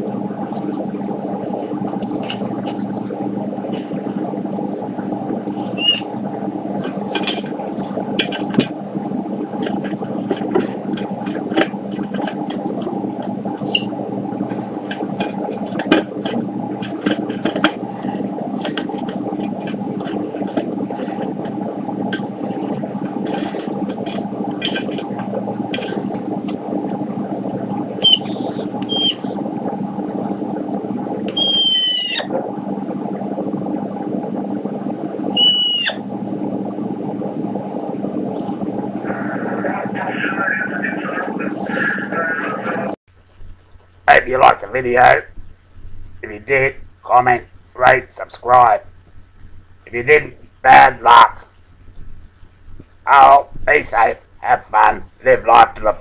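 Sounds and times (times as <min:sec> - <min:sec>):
steady low hum: 0:00.0 - 0:56.0
cockatoo chirps and calls: 0:31.4 - 0:32.3, 0:35.4 - 0:36.0.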